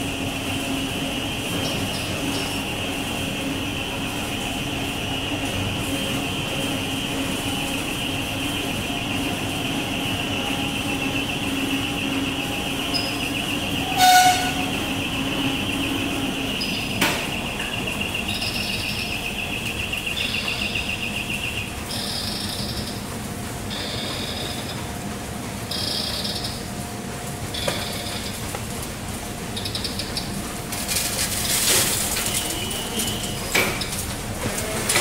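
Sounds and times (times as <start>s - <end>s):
high whine: 0.0s - 23.1s
waste plant machinery running: 0.0s - 35.0s.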